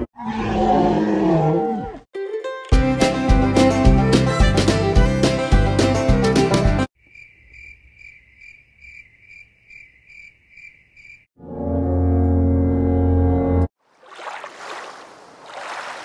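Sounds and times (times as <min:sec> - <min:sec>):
plucked-string tune: 0:02.2 - 0:06.6
cricket chirping: 0:07.0 - 0:11.3.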